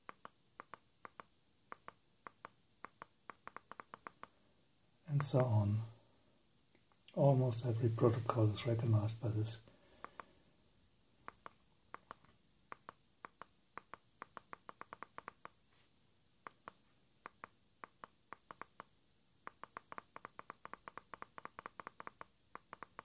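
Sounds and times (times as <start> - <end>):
remote control buttons clicking: 11.2 - 15.6.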